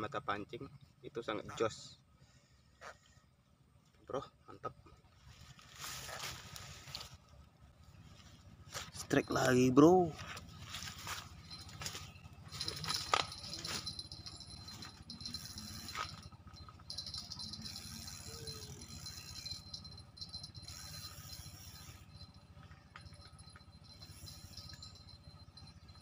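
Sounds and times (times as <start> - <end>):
footsteps through undergrowth: 5.2 - 7.3, 7.9 - 9.4, 10.0 - 15.0
fishing reel whirring: 11.4 - 26.0.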